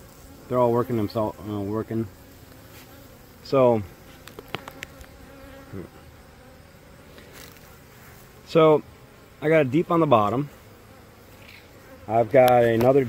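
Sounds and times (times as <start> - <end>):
bees buzzing: 0.0 - 13.0
person vocal sound: 5.7 - 6.0.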